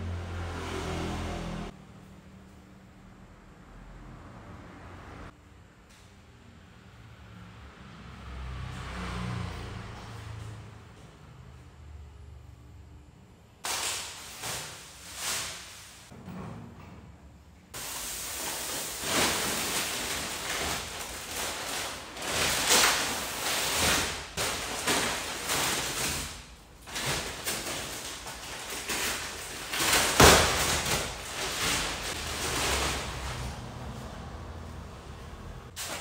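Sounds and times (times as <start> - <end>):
plastic bag rustling and crinkling: 17.8 - 34.0.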